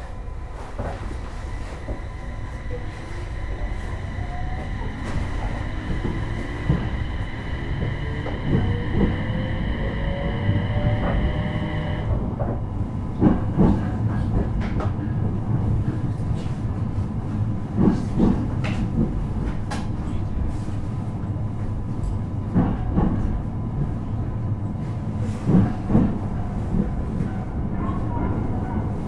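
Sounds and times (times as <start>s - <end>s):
train running rumble: 0.0s - 29.0s
train motor whine: 0.1s - 12.2s.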